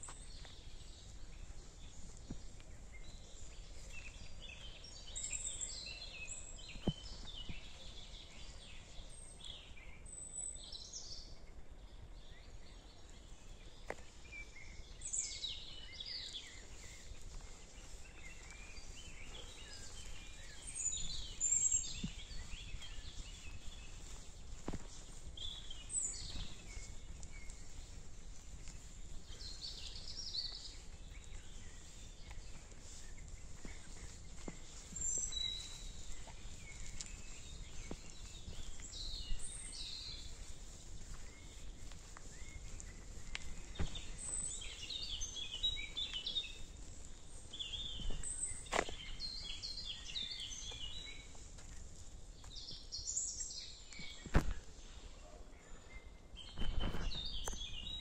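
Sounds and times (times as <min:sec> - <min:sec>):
footsteps on woodland path: 0:00.0 - 0:58.0
songbirds chirping: 0:00.0 - 0:58.0.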